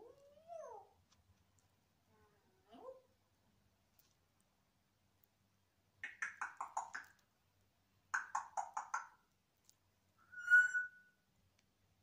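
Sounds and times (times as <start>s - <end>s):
parrot whistle: 10.3s - 11.2s.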